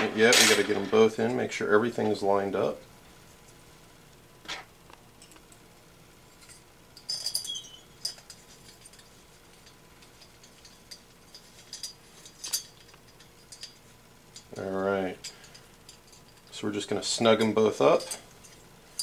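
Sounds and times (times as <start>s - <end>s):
ringing metal clink: 7.0s - 9.0s, 17.8s - 19.0s.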